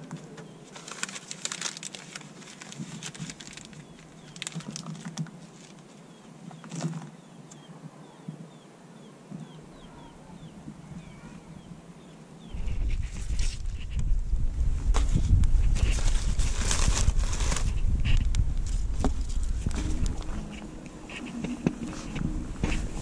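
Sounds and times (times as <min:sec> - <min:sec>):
wood and embers clattering: 0:00.0 - 0:05.9
bird chirping: 0:03.7 - 0:04.8, 0:06.0 - 0:12.9.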